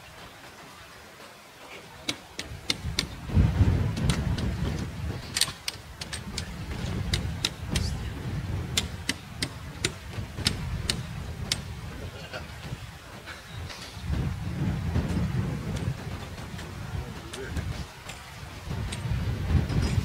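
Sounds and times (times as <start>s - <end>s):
low rumble: 14.0s - 17.9s.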